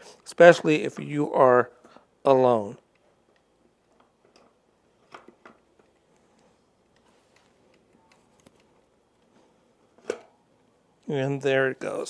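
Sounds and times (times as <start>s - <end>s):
faint clicks and knocks: 2.8s - 10.3s.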